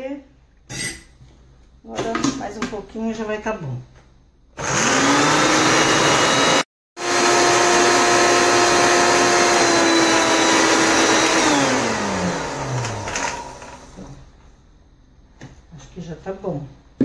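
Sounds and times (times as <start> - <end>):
blender motor running: 4.6 - 14.1.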